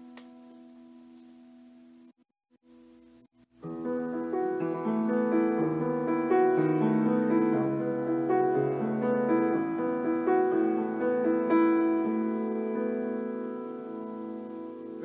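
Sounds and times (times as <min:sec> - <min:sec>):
solo piano playing chords: 0:03.1 - 0:15.0.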